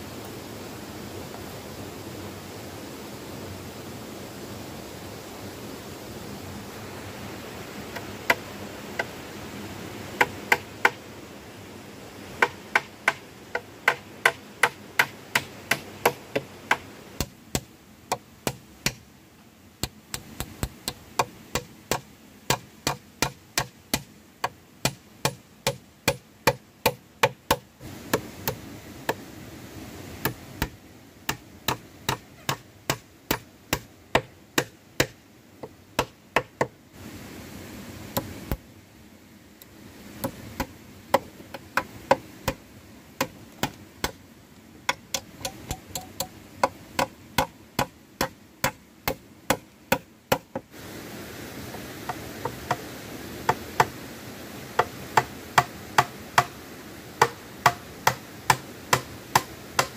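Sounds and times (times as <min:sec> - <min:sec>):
hand tool striking wood: 0:10.2 - 0:11.0, 0:12.4 - 0:19.0, 0:19.8 - 0:29.2, 0:30.2 - 0:36.7, 0:40.2 - 0:42.6, 0:43.2 - 0:44.2, 0:44.9 - 0:50.6, 0:52.1 - 0:52.8, 0:54.8 - 0:56.6, 0:57.2 - 0:59.9.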